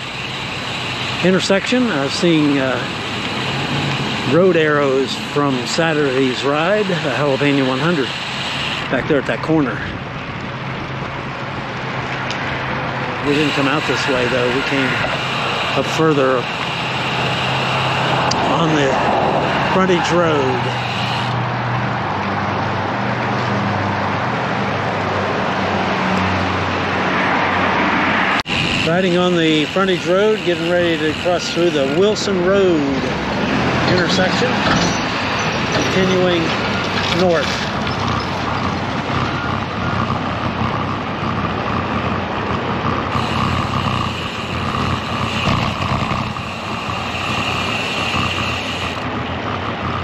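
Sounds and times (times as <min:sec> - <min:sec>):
bike tyres on rough pavement: 0:28.2 - 0:50.0
low hum: 0:34.6 - 0:50.0.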